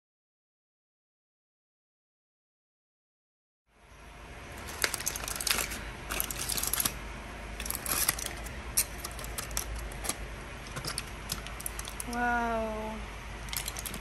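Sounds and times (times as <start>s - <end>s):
low steady hum: 3.7s - 14.0s
aluminium foil crinkling: 4.6s - 7.0s, 7.6s - 12.3s, 13.4s - 14.0s.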